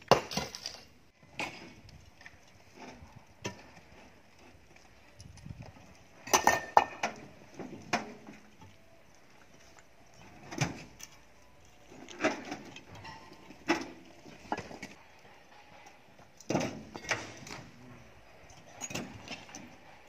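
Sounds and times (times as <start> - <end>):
rocks clunking in truck bed: 0.0 - 4.7, 5.4 - 8.7, 10.1 - 11.2, 11.9 - 15.0, 16.3 - 18.0, 18.8 - 19.9.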